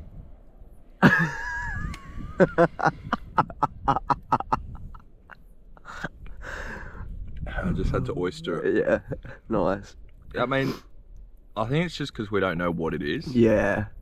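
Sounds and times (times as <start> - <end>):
man laughing hard: 1.0 - 6.9, 8.7 - 9.4.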